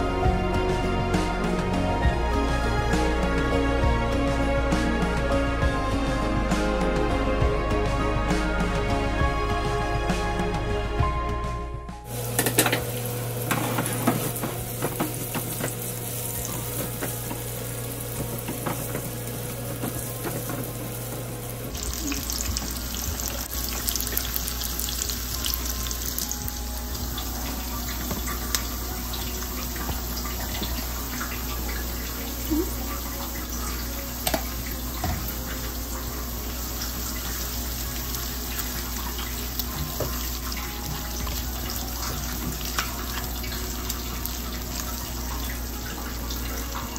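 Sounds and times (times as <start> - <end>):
spatula scraping pan: 12.1 - 23.4
onions sizzling in oil: 12.1 - 46.9.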